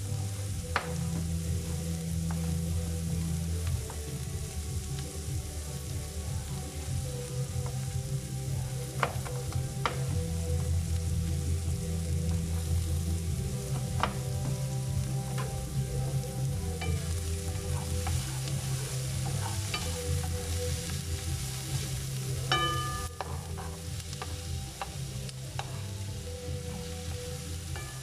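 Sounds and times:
onions sizzling in a frying pan: 0.0s - 28.0s
wooden spatula scraping a pan: 16.8s - 25.9s.

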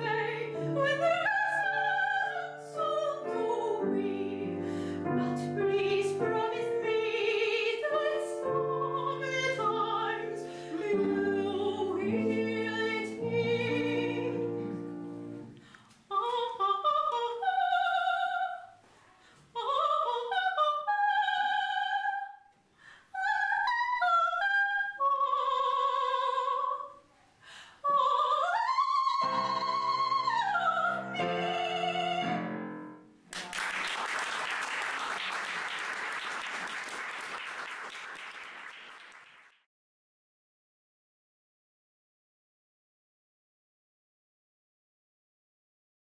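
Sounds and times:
soprano singing operatic: 0.0s - 15.4s, 16.1s - 18.8s, 19.4s - 22.4s, 23.1s - 27.0s, 27.7s - 32.6s
piano accompaniment: 0.0s - 15.6s, 29.2s - 33.3s
applause: 33.3s - 39.7s.

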